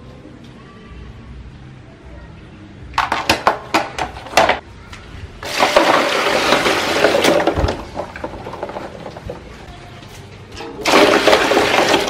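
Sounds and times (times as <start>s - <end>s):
plastic toys clattering in basin: 5.4s - 9.6s, 10.6s - 12.0s.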